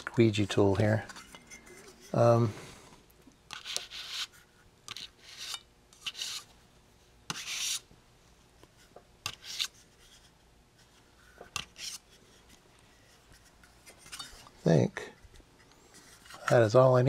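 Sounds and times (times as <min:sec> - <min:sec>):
squeegee scraping metal stencil: 0:03.5 - 0:06.5, 0:07.3 - 0:07.9, 0:11.6 - 0:12.1.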